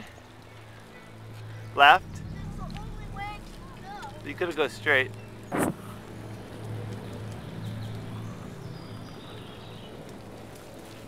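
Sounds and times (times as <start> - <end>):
bicycle riding rumble: 0.0 - 11.0
sharp knock: 5.5 - 5.8.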